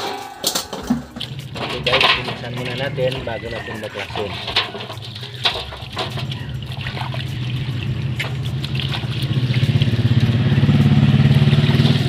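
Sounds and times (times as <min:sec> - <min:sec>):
rag scrubbing metal part: 0:00.0 - 0:09.0
engine humming: 0:00.0 - 0:12.0
water splashing in basin: 0:00.0 - 0:12.0.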